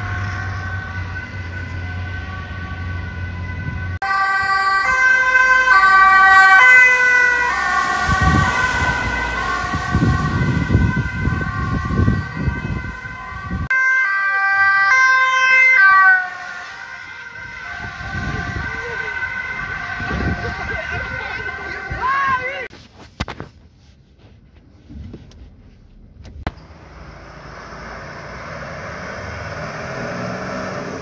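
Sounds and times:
ambulance siren two-tone: 0.0 - 22.6
engine and road noise: 0.0 - 31.0.

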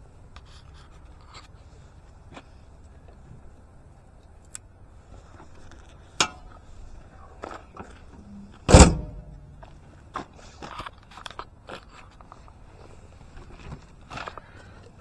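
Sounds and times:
sharp latch click: 8.7 - 9.3
engine hood slamming shut: 8.7 - 9.4.

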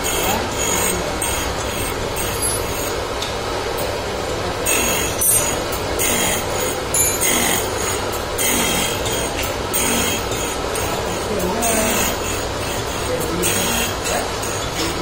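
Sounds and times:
high screeching grinding bursts: 0.0 - 3.0, 4.6 - 15.0
grinder running: 0.0 - 15.0.

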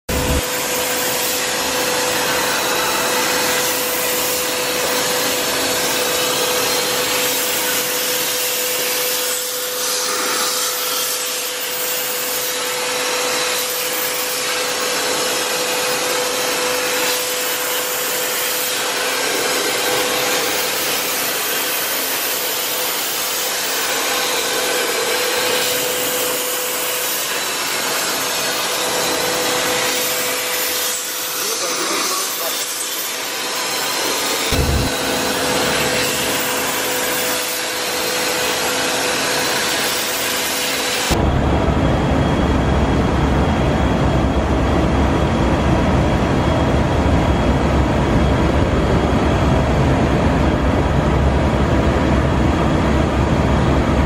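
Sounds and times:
boring mill whirring hiss: 0.1 - 41.2.

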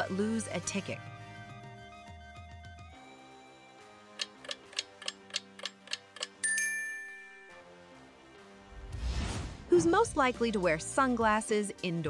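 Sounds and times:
soft background music: 0.0 - 12.0
bell-like chime: 6.4 - 7.7.

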